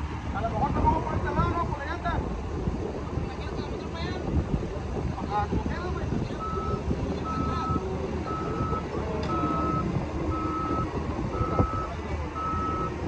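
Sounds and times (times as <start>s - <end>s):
low engine rumble: 0.0s - 13.0s
backup alarm beeping: 6.4s - 13.0s.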